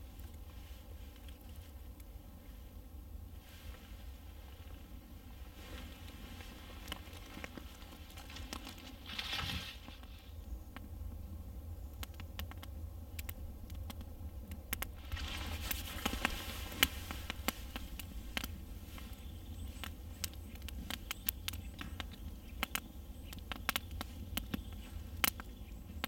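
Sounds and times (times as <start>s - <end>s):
campfire crackling and popping: 6.1s - 26.0s
fire hissing: 14.8s - 22.7s.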